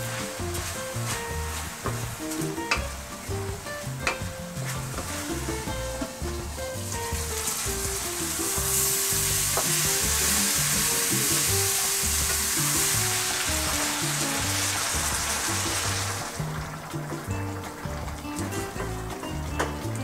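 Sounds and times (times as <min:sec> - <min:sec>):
wooden spatula scraping: 0:00.0 - 0:03.3, 0:03.9 - 0:11.5
background music with bass line: 0:00.0 - 0:20.0
food sizzling in a skillet: 0:00.0 - 0:20.0.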